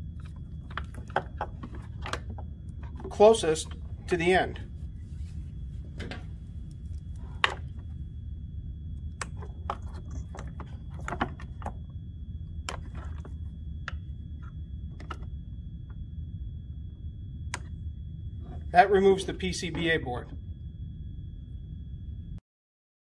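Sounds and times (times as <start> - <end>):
wires and plastic rattling: 0.0 - 4.2, 9.1 - 11.9.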